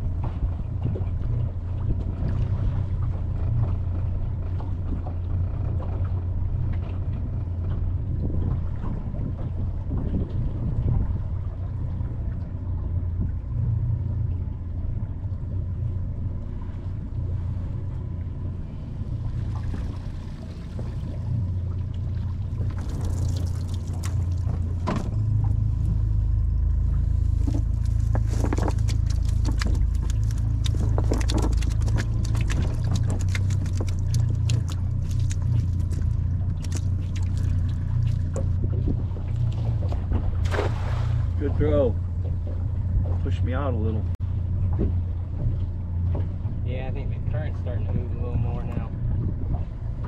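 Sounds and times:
steady low rumble: 0:00.0 - 0:50.0
water pouring and dripping: 0:22.6 - 0:24.7, 0:27.6 - 0:38.6.

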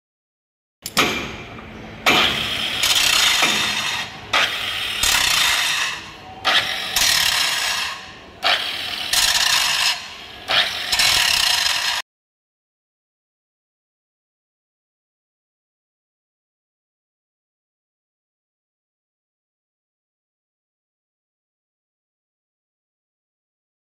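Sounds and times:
angle grinder grinding steel: 0:02.2 - 0:12.0.

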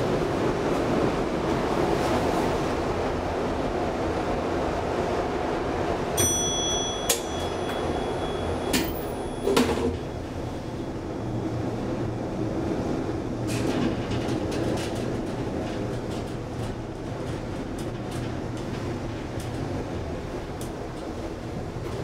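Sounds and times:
elevator doors clunking shut: 0:06.2 - 0:22.0.

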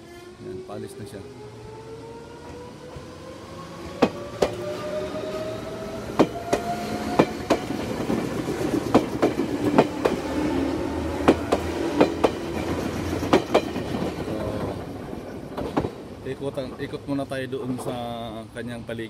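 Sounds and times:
train rumble: 0:00.1 - 0:18.6
train motor whine rising: 0:00.2 - 0:09.0
train wheels clacking over joints: 0:06.1 - 0:10.4, 0:11.2 - 0:18.0.

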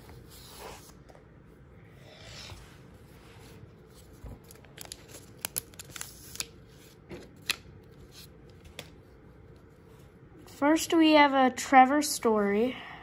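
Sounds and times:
wrapper crinkling: 0:04.0 - 0:06.6.

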